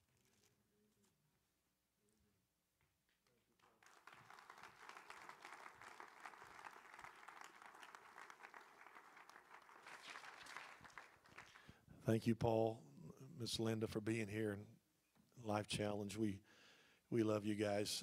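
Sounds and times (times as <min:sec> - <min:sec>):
faint applause: 0:03.6 - 0:11.8.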